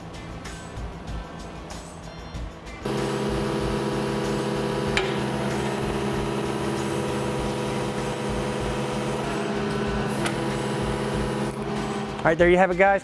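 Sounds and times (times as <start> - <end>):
diesel engine running: 2.8 - 12.3.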